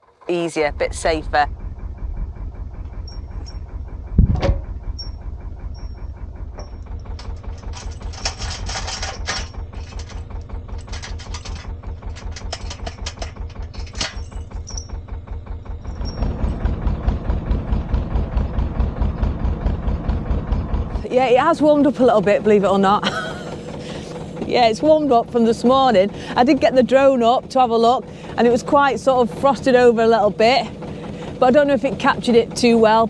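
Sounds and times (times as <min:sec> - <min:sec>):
diesel engine idling: 0:00.0 - 0:33.0
rustling and clatter: 0:02.7 - 0:18.5.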